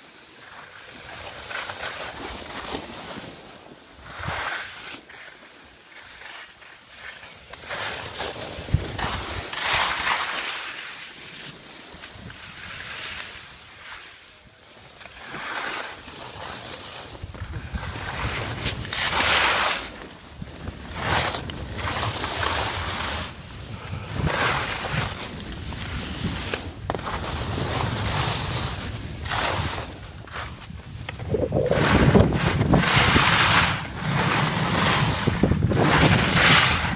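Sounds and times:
skis scraping over snow: 0.0s - 36.9s
wind on microphone: 20.4s - 36.9s.

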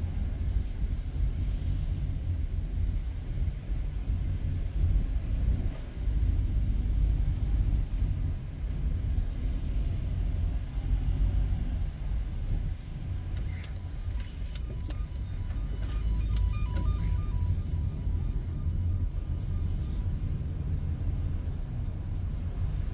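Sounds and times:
car cabin rumble: 12.4s - 19.8s
short repeated beeps: 14.6s - 20.0s.

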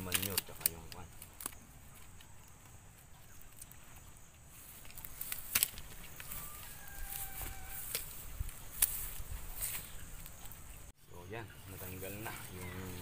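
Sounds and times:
hands rustling and scraping soil: 0.0s - 13.0s.

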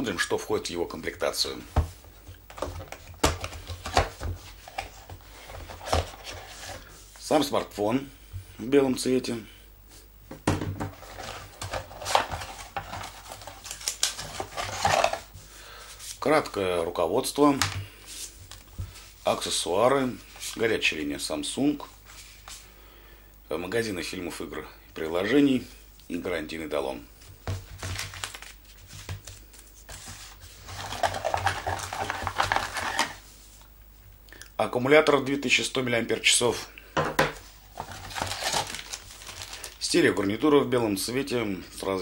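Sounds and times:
cardboard and paper rustling: 1.6s - 7.6s, 10.8s - 16.2s, 27.2s - 33.3s, 37.4s - 40.0s.

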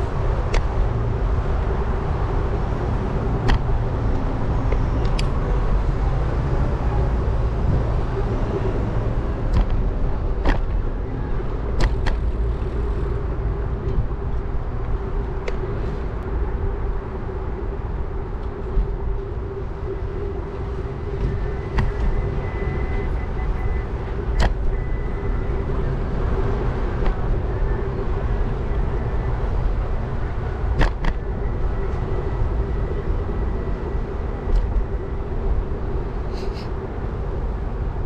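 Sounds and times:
steady hum: 0.0s - 38.0s
wind on microphone: 0.0s - 38.0s
sharp clicks and knocks: 9.5s - 9.8s, 10.4s - 10.8s, 11.8s - 12.4s, 24.3s - 24.8s.

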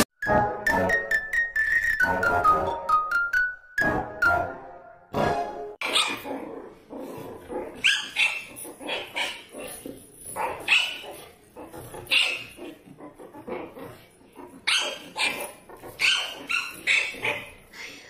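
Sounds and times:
dog barking: 5.8s - 6.3s, 7.8s - 9.8s, 10.4s - 11.3s, 12.0s - 12.6s, 14.6s - 17.6s.

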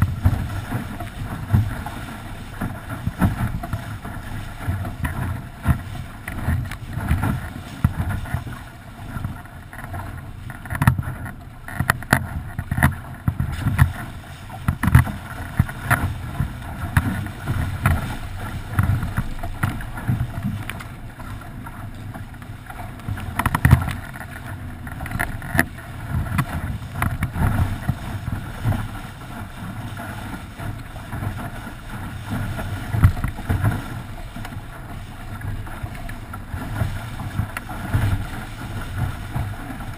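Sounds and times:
hull slapping against waves: 0.0s - 39.9s
water rushing along a hull: 0.0s - 39.9s.

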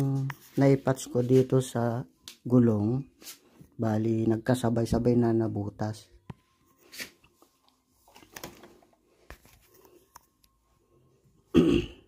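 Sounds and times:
phone being handled: 6.2s - 10.6s
man coughing: 11.5s - 12.0s.

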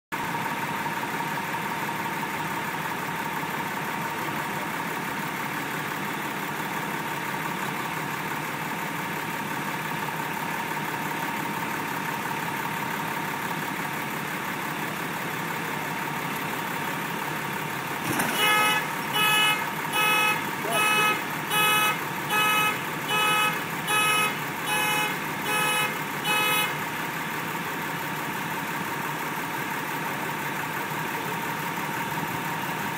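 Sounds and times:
truck engine idling: 0.2s - 32.9s
car horn honking: 18.0s - 26.9s.

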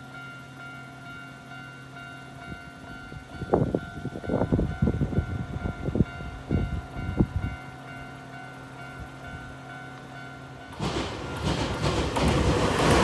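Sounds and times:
level crossing warning bell: 0.0s - 13.0s
loud irregular knocks: 10.8s - 13.0s.

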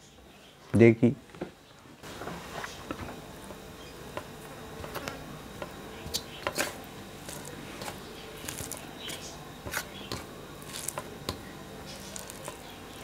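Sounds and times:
faint steady hum: 0.0s - 13.0s
fingers squishing rice: 6.0s - 13.0s.

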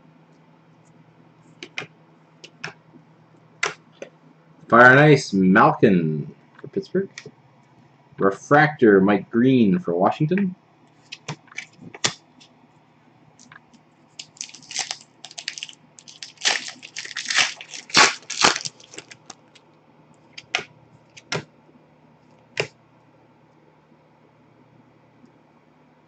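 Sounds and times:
plastic wrapper crinkling and tearing: 14.2s - 19.6s
cards clicking against desk: 20.4s - 21.4s.

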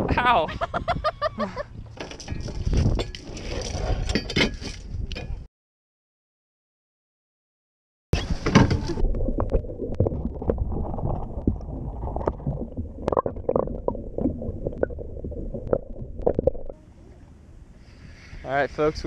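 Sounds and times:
muffled underwater churning rumble: 8.2s - 18.8s.

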